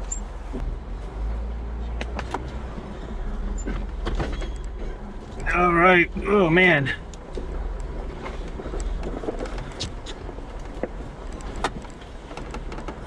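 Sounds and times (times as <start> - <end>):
jeep engine running low: 0.0 - 13.0
sharp clicks and knocks: 7.0 - 13.0.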